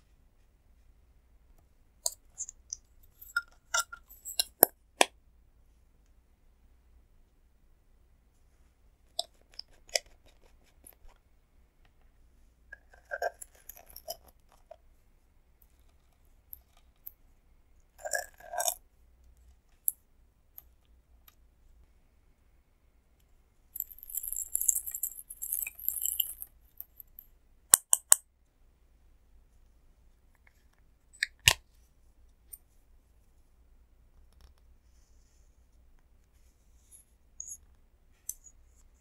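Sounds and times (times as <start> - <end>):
sequins pattering onto plate: 23.8 - 27.3.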